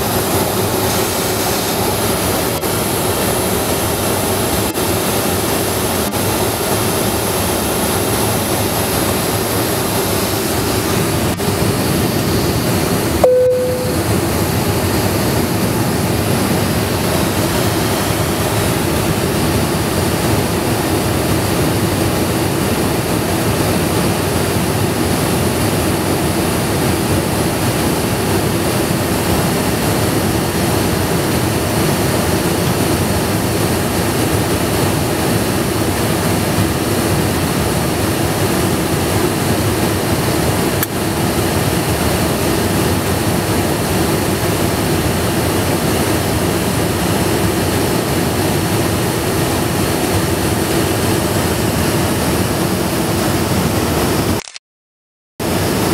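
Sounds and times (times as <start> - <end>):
steady low hum: 0.0 - 21.2
airflow rushing in cabin: 0.0 - 54.4, 55.4 - 55.9
jet engines droning: 0.0 - 54.4.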